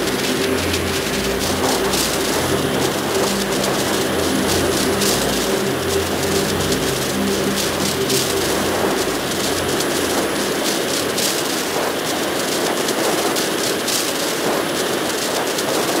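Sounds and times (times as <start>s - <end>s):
low hum: 0.0s - 11.9s
rushing air roar: 0.0s - 15.1s
bursts of hiss: 0.0s - 16.0s.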